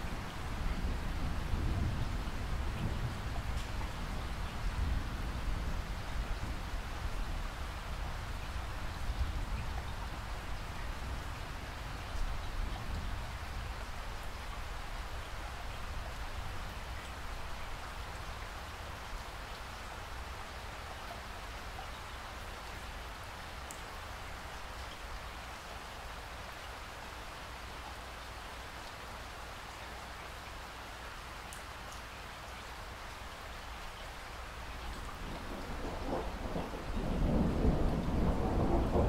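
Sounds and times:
steady rainfall: 0.0s - 39.0s
low thunder rumble: 35.0s - 39.0s.

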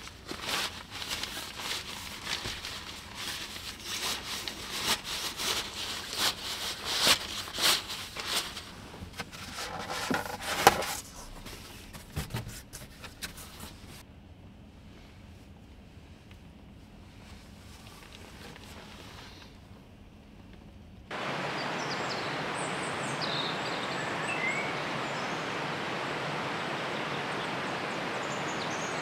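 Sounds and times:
rustling handling noises: 0.0s - 14.0s, 14.8s - 19.7s.

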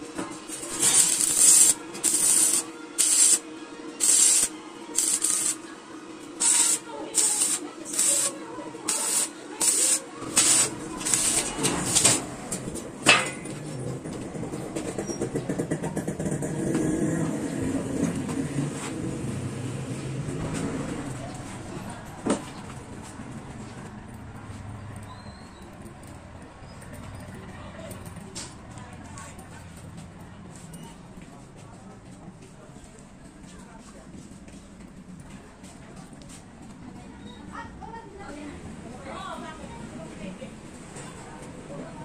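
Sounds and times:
arc welder crackling hiss: 0.5s - 3.4s, 4.0s - 5.7s, 6.4s - 12.2s.

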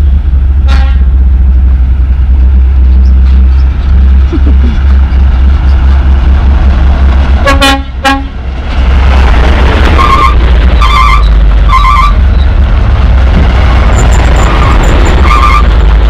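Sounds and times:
diesel trucks rumbling past: 0.0s - 16.0s
truck horn toots: 0.7s - 1.1s, 7.4s - 8.3s.

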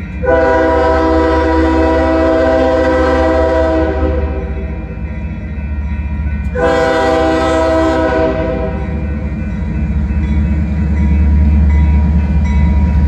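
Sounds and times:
locomotive air horn blast: 0.2s - 4.7s, 6.6s - 9.0s.

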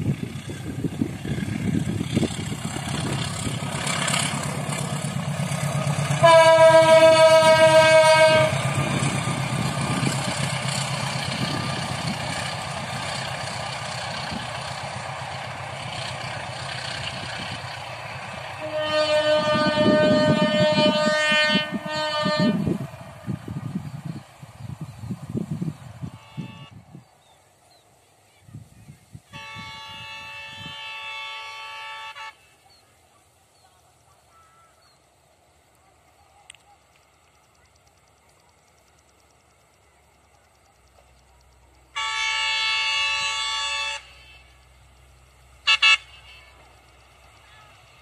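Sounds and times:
train rumbling past: 0.0s - 48.0s
train horn blasts: 6.0s - 9.2s, 18.4s - 22.9s, 26.0s - 26.8s, 29.3s - 32.6s, 41.9s - 44.6s, 45.6s - 46.8s.

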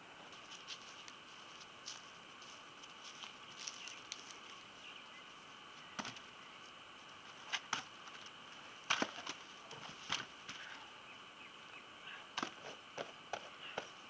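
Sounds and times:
faint outdoor hiss: 0.0s - 14.0s
firewood logs knocking: 6.0s - 6.2s, 8.9s - 10.7s.

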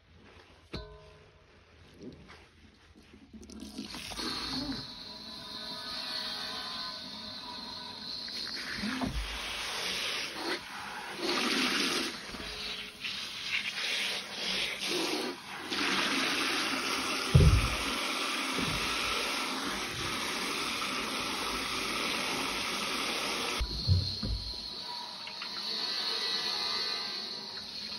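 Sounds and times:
tap water running into metal bowl: 15.7s - 24.7s
dull thump: 17.4s - 17.8s, 23.6s - 24.6s.

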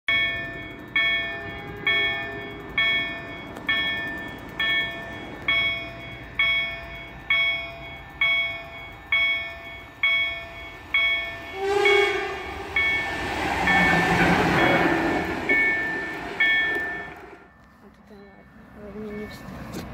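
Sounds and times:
level crossing bell ringing: 0.1s - 19.6s
locomotive wheels rumbling on rails: 0.1s - 19.9s
locomotive horn blast: 1.4s - 2.7s, 11.4s - 16.4s.

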